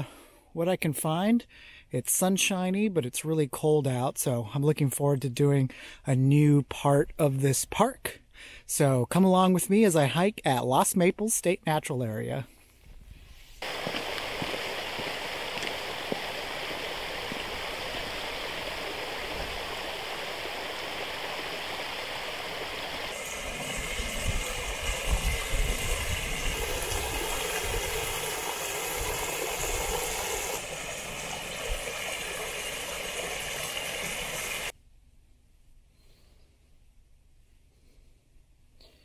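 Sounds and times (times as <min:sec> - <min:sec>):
stream running: 0:13.6 - 0:34.7.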